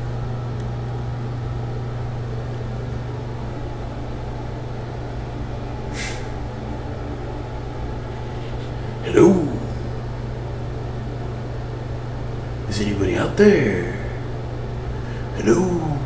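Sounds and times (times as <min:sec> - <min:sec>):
low electrical hum: 0:00.0 - 0:16.0
brief hiss: 0:05.9 - 0:06.4.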